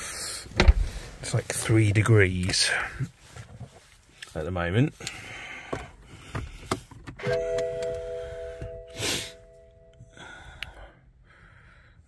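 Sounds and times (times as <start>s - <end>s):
dashboard warning chime: 7.2s - 10.4s.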